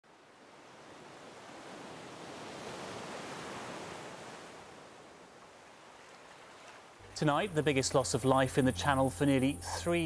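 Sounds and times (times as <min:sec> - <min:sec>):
waves and surf: 0:00.0 - 0:07.5.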